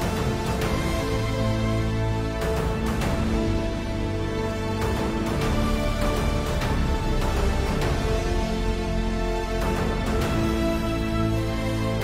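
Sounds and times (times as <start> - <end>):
background music with held chords: 0.0 - 12.0.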